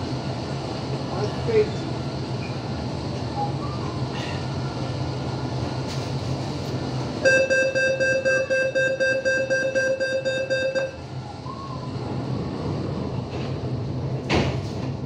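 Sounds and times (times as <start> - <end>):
low hum of train carriage: 0.0 - 15.0
train door warning buzzer: 7.2 - 11.0.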